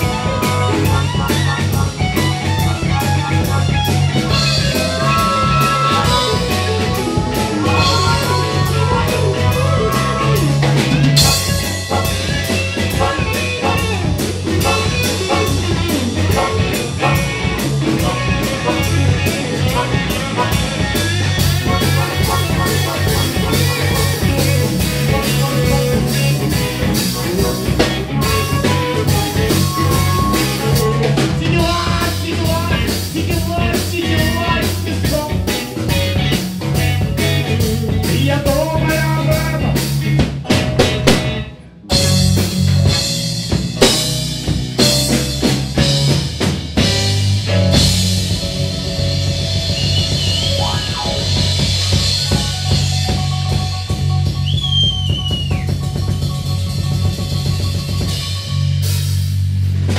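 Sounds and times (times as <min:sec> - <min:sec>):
long held guitar notes: 0:00.0 - 0:32.0, 0:46.8 - 0:59.2
blues-rock band playing: 0:00.0 - 0:59.9.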